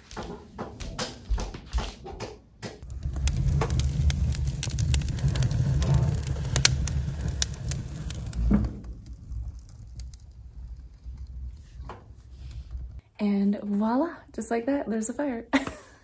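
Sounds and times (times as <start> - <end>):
wood fire crackling and popping: 0.0 - 13.0
low rumble of stove: 2.8 - 13.1.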